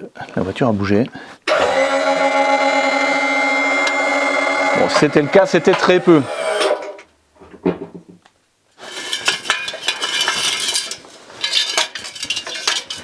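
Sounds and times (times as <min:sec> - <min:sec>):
metal hand tools clinking: 0:08.9 - 0:13.0.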